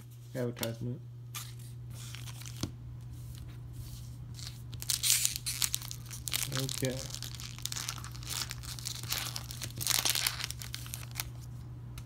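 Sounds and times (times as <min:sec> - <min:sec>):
foil wrapper tearing and crinkling: 0:04.4 - 0:11.5.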